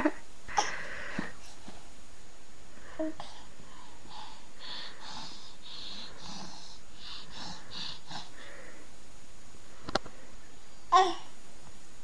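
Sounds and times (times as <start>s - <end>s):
puppies breathing noisily: 4.0s - 8.8s.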